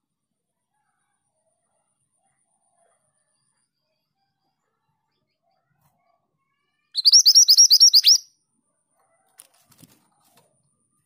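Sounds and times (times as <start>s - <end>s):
bird chirping upward notes: 7.0s - 8.3s.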